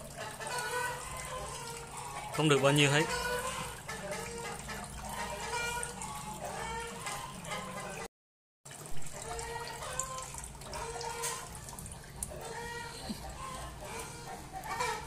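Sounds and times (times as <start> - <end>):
water trickling into plastic basin: 0.0 - 8.1, 8.7 - 15.0
chickens clucking: 0.2 - 8.1, 12.3 - 15.0.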